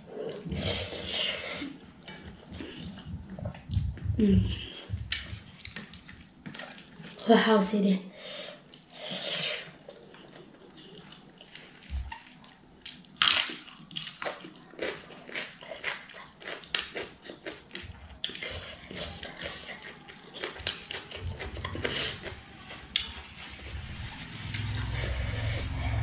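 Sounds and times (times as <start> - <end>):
low rumbling noise: 3.0 - 5.5, 21.6 - 26.0
crunching food: 9.6 - 24.8
wet chewing and lip smacks: 9.8 - 23.2.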